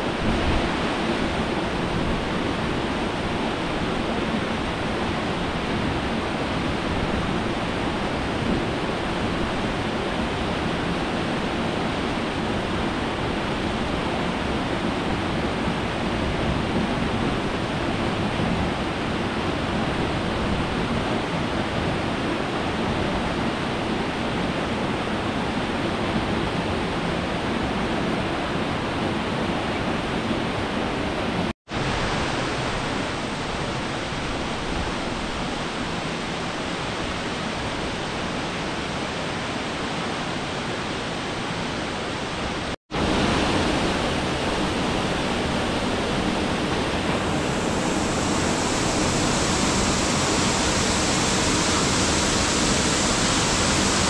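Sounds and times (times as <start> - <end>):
steady rushing noise: 0.0 - 28.0, 40.8 - 54.0.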